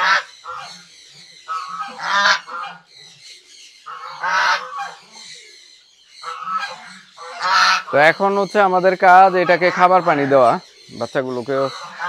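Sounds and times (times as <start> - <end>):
goose honking: 0.0 - 0.8, 1.5 - 2.9, 3.9 - 5.0, 6.2 - 10.6, 11.7 - 12.0.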